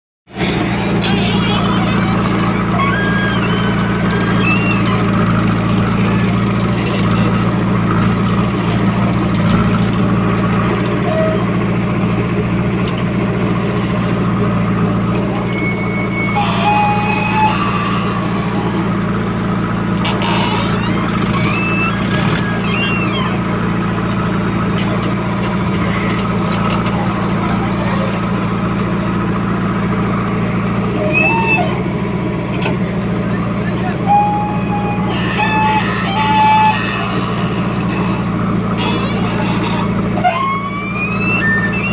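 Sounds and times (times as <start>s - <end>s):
diesel engine under load: 0.3s - 41.9s
high steady tone: 15.3s - 20.0s.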